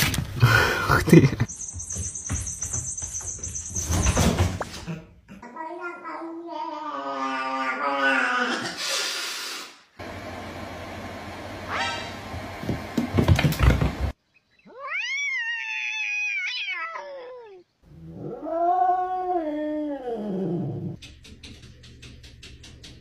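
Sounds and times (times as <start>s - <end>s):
knocks and clatter: 12.6s - 14.1s
cat meowing: 14.7s - 17.6s
cat yowling: 14.7s - 17.6s.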